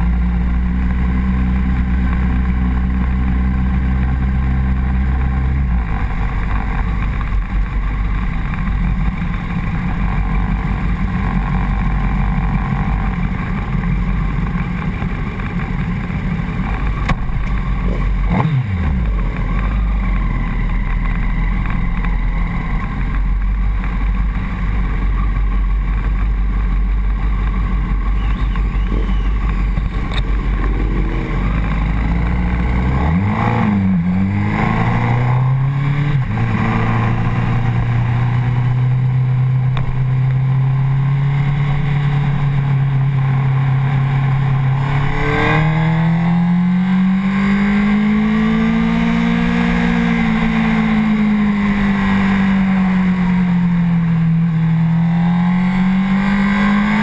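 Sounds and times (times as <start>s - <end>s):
motorcycle engine running at low revs: 0.0s - 57.0s
quick pitch sweep: 28.1s - 33.8s.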